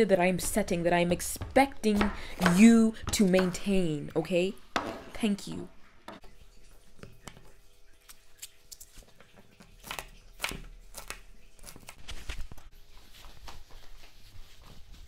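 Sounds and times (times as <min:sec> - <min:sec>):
knife chopping on cutting board: 0:00.4 - 0:03.6, 0:04.8 - 0:05.1.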